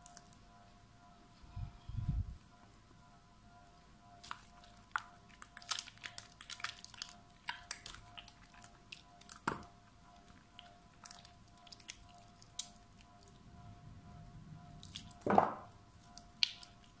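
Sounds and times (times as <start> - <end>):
hands squishing wet soap: 4.2 - 13.1, 14.8 - 15.3, 16.1 - 17.0.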